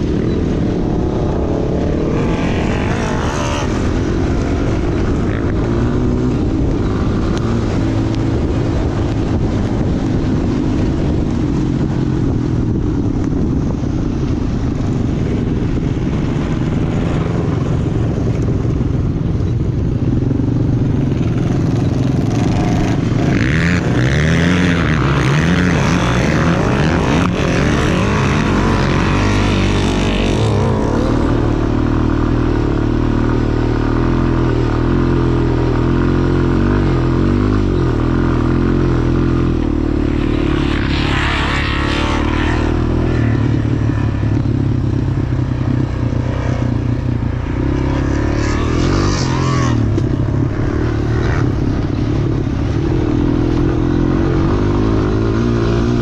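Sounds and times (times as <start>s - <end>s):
quad bike engine revving: 0.0s - 12.0s, 20.4s - 56.0s.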